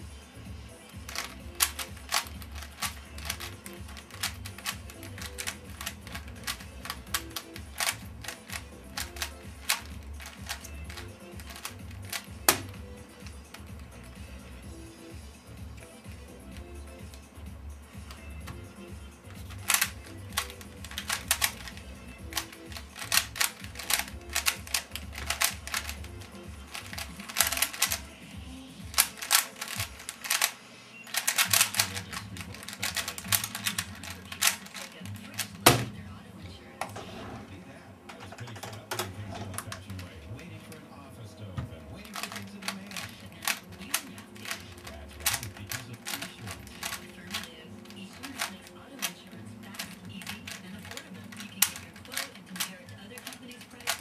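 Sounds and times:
puzzle cube plastic clicks: 0.8s - 14.6s, 18.0s - 28.1s, 28.9s - 30.5s, 31.1s - 36.0s, 38.2s - 40.3s, 41.9s - 54.0s.

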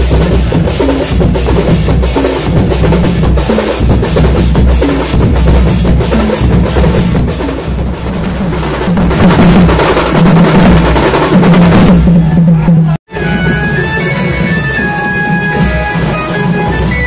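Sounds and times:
drum band playing fast beat: 0.0s - 17.0s.

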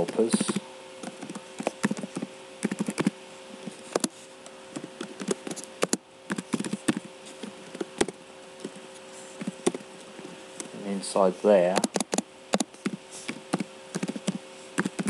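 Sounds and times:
keyboard typing: 0.0s - 3.2s, 4.8s - 8.8s, 9.4s - 9.8s, 11.8s - 15.0s
steady electrical hum: 0.0s - 15.0s.

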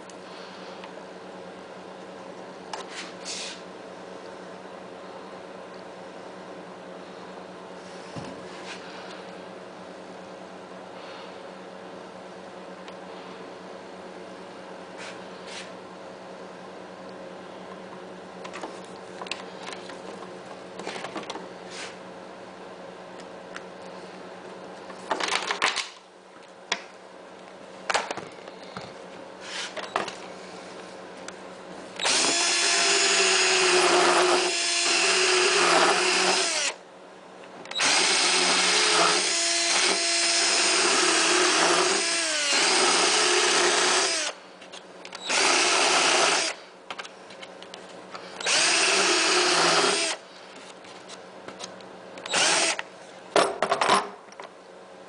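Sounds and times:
power drill boring: 32.0s - 36.8s, 37.7s - 44.4s, 45.2s - 46.6s, 48.4s - 50.2s, 52.3s - 52.8s.

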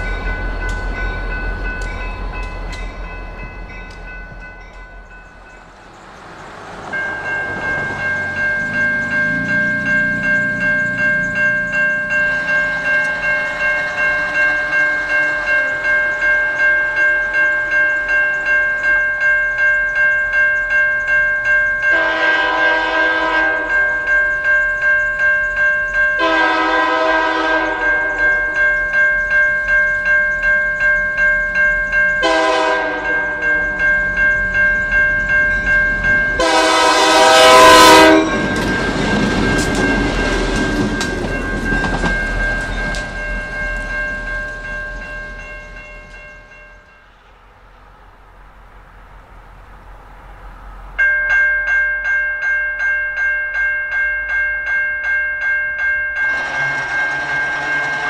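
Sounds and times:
crossing warning bell ringing: 0.0s - 47.3s, 50.4s - 58.0s
locomotive horn blasts: 21.9s - 23.8s, 26.2s - 28.4s, 32.2s - 33.6s, 36.4s - 38.5s, 56.3s - 58.0s.

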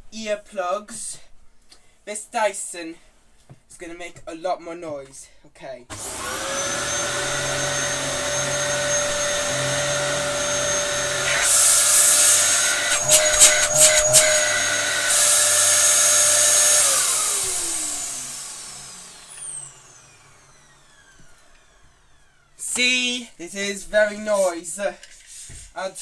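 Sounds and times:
vacuum cleaner whine: 5.9s - 23.2s
loud rushing hiss: 7.1s - 19.1s.

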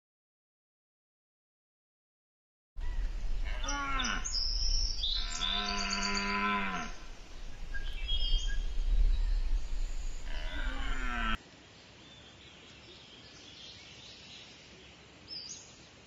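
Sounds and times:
steady low rumble: 2.8s - 5.4s, 6.9s - 11.1s
deer calling: 2.8s - 8.8s, 9.4s - 11.4s
birds chirping: 2.8s - 16.0s.

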